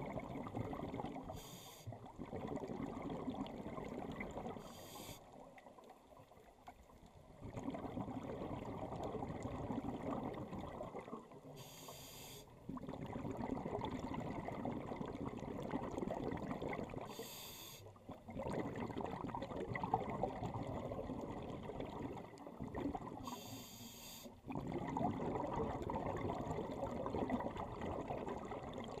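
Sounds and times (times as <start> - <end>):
regulator hissing inhale: 1.3 - 2.0, 4.6 - 5.3, 11.6 - 12.5, 17.1 - 17.9, 23.2 - 24.4
bubbling exhale: 7.4 - 29.0.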